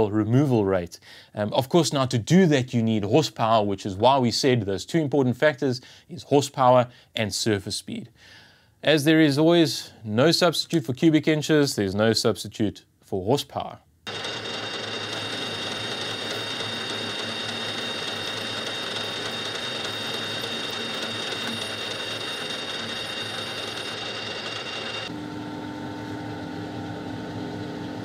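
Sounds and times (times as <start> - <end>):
high cutting whine: 14.1 - 25.1
metal lathe drone: 14.1 - 25.1.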